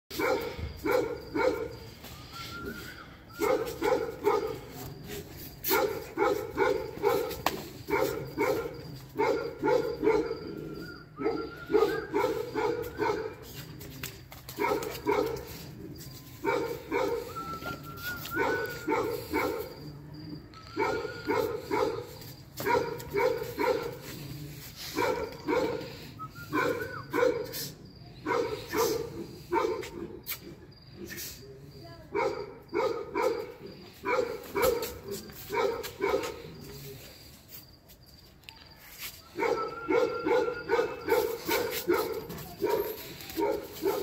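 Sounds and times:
dog barking: 0:00.1 - 0:01.8, 0:03.4 - 0:04.8, 0:05.7 - 0:13.4, 0:14.6 - 0:15.7, 0:16.4 - 0:17.7, 0:18.3 - 0:19.8, 0:20.7 - 0:24.2, 0:24.9 - 0:25.9, 0:26.5 - 0:30.5, 0:32.1 - 0:36.5, 0:39.3 - 0:44.0.

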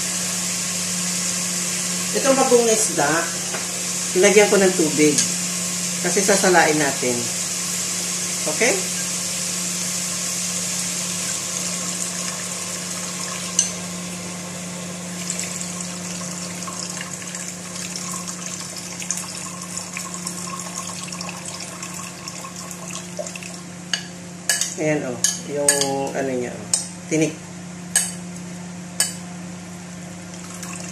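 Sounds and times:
liquid hissing in hot pot: 0:02.8 - 0:23.4.

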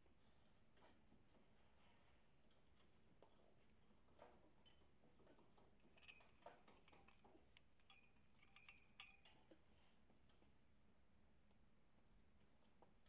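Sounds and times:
light metallic clicks and clinks: 0:02.5 - 0:10.5.

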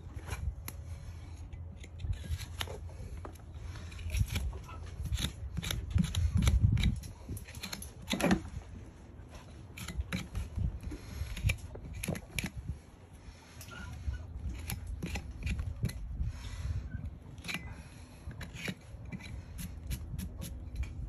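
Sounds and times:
hoof knife cutting strokes: 0:00.2 - 0:08.6, 0:09.3 - 0:21.0.

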